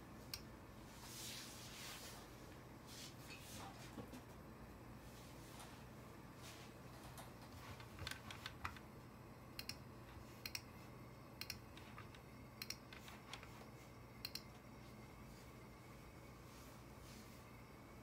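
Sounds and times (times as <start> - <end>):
low steady hum: 0.0 - 18.0
computer keys clicking: 7.2 - 8.9, 9.6 - 9.8, 11.4 - 13.5, 14.2 - 14.5.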